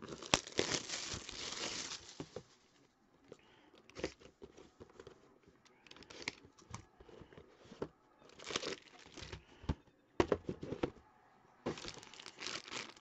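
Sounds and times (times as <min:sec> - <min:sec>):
foil bag crinkling: 0:00.0 - 0:02.7, 0:08.3 - 0:09.4, 0:11.7 - 0:13.0.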